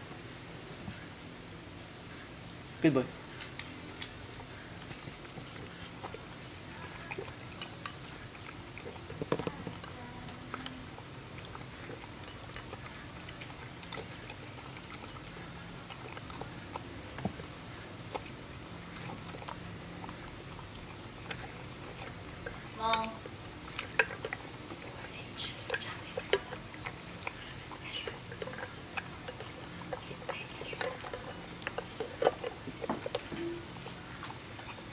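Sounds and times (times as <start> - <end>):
dog chewing and lapping: 3.2 - 34.9
teeth clicking against metal bowl: 7.0 - 16.8, 18.1 - 34.9.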